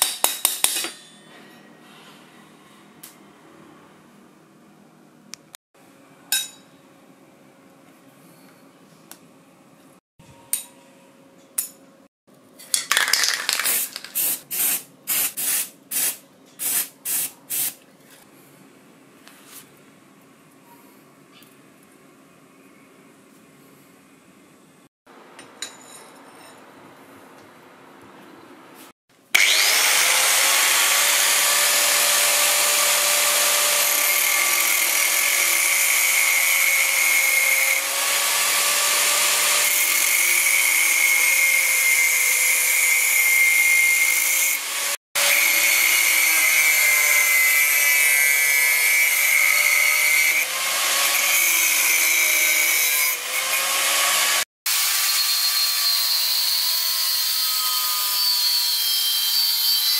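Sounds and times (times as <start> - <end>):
electric grinder grinding metal: 29.4 - 59.9.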